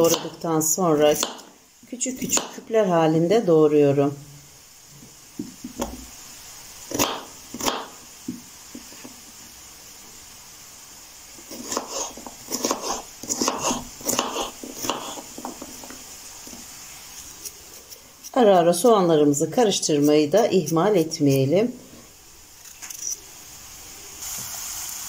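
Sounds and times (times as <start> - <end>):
knife chopping on cutting board: 6.9 - 8.9, 11.5 - 15.9.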